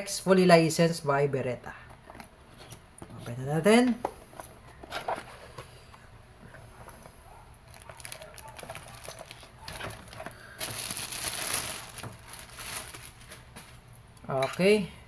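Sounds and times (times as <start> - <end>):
plastic bag crinkling: 7.6 - 13.8.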